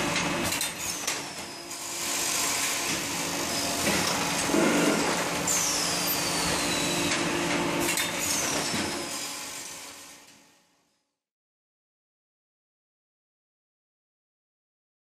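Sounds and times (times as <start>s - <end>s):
machine mechanical clatter: 0.1s - 1.5s, 7.1s - 9.1s.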